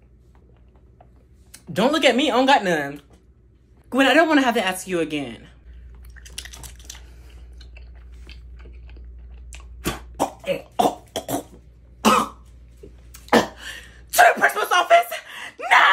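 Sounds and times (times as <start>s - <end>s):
mouth clicks and smacks: 6.0s - 8.5s
person coughing hard: 9.8s - 12.4s, 13.3s - 13.7s.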